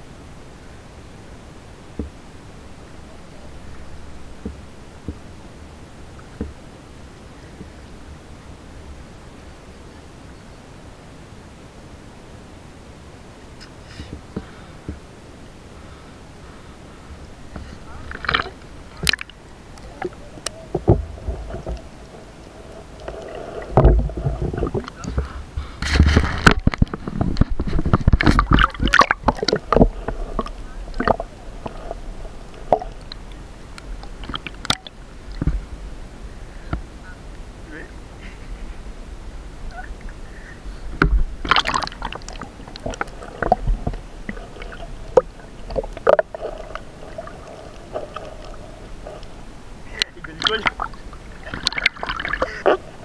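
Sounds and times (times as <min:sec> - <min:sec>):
muffled underwater rumble: 0:00.0 - 0:12.0, 0:13.3 - 0:53.0
underwater knocks: 0:02.0 - 0:02.2, 0:04.4 - 0:05.3, 0:20.0 - 0:22.3, 0:23.0 - 0:33.3, 0:40.9 - 0:49.4
water surge: 0:17.3 - 0:36.2, 0:39.7 - 0:53.0.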